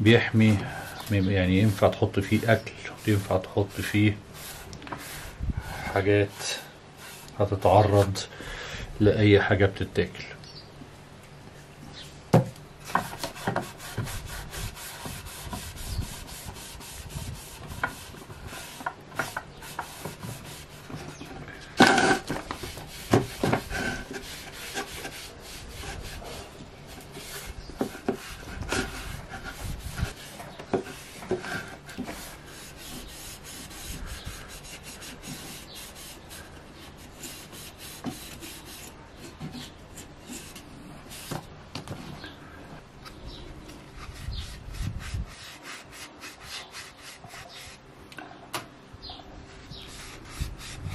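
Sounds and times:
sponge wiping wood: 0.4 - 5.4, 6.0 - 8.0, 12.9 - 21.3, 22.4 - 41.4.

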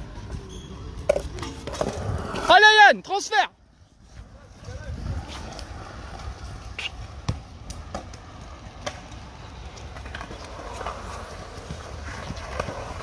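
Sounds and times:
skateboards rolling on concrete: 0.0 - 13.0
skateboard clacks on concrete: 5.2 - 13.0.

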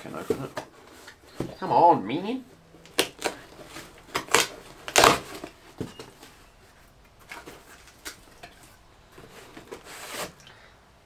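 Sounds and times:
packaging rustling and clicking: 2.8 - 6.4, 7.1 - 10.4
parcel tearing: 2.9 - 5.5.

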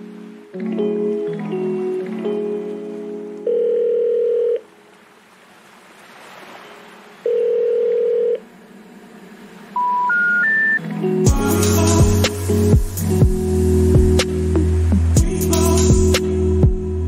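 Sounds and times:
telephone ringback tones: 3.4 - 4.7, 7.3 - 8.4, 9.8 - 10.8
rising telephone beeps: 3.5 - 4.6, 7.3 - 8.4, 9.8 - 10.8.

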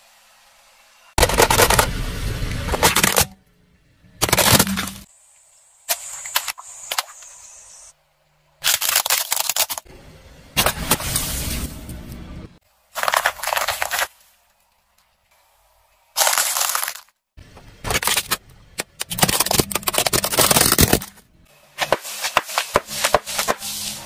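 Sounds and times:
hard plastic cracking: 17.9 - 21.2.

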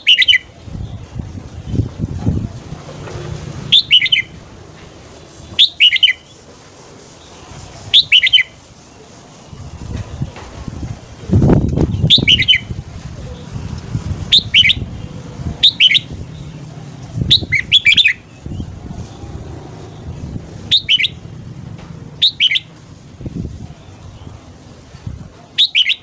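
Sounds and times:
bird singing warbled phrases: 0.0 - 0.9, 3.7 - 4.4, 5.6 - 6.3, 11.8 - 12.8, 14.3 - 18.8, 20.7 - 21.4, 22.2 - 22.7, 25.6 - 26.0
low rumble: 0.7 - 5.4, 9.8 - 25.3.

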